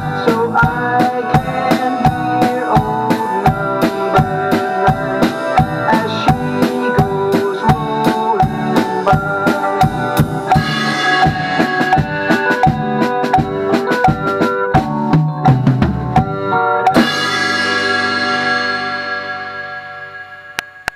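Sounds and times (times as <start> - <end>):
backing music: 0.0 - 20.9
drum kit playing: 0.0 - 20.9
cymbal crash ringing: 17.0 - 20.8.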